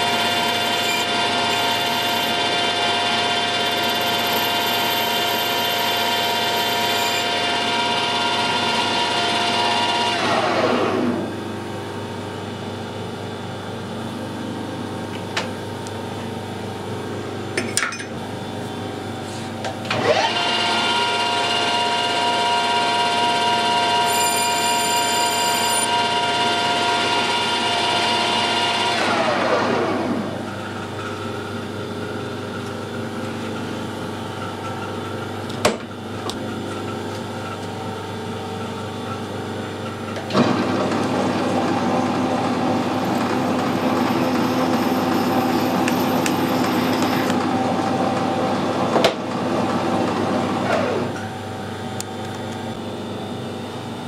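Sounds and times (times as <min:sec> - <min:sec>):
metal lathe humming: 0:00.0 - 0:11.2, 0:19.9 - 0:29.0.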